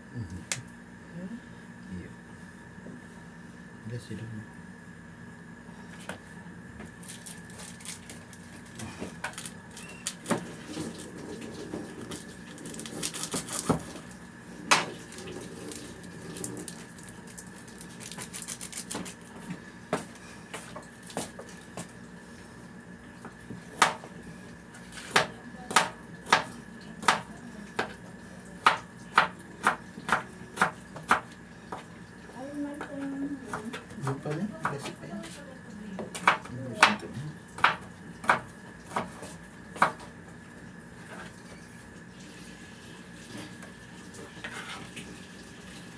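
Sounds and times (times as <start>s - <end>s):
knife chopping on plastic board: 23.5s - 24.1s, 25.0s - 28.0s, 28.6s - 31.8s, 36.0s - 40.1s.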